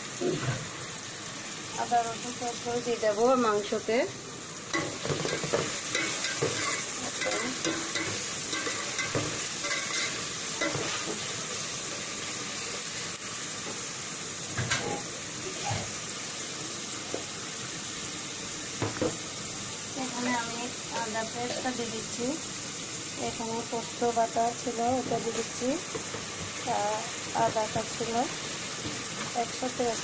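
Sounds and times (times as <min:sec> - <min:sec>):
food sizzling in hot oil: 0:00.0 - 0:30.0
spoon knocking and scraping pan: 0:04.7 - 0:11.3, 0:18.8 - 0:19.2, 0:25.3 - 0:26.6.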